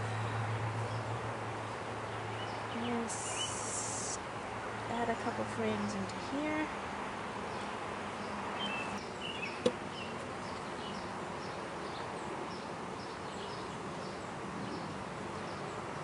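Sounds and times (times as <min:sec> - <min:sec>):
bees buzzing: 0:02.8 - 0:04.2.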